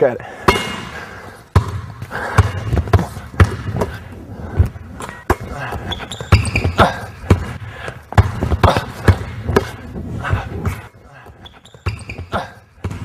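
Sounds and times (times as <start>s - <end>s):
basketball bouncing on hardwood: 1.5s - 4.0s, 6.1s - 10.5s
sneaker squeak: 5.0s - 7.2s, 10.7s - 13.0s.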